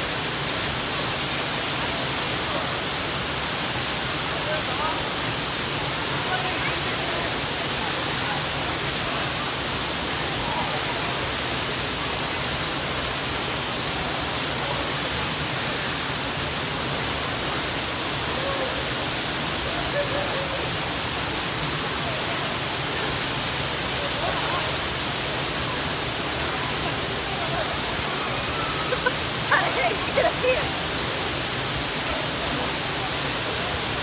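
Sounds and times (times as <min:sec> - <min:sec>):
waterfall rushing: 0:00.0 - 0:34.0
faint voices: 0:14.2 - 0:34.0.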